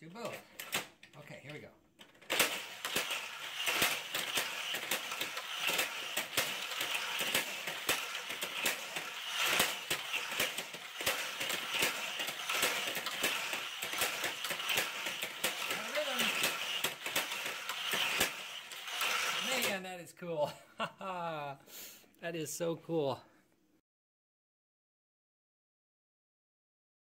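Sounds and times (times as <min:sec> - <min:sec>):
toy cars rattling on plastic track: 0:02.0 - 0:19.8.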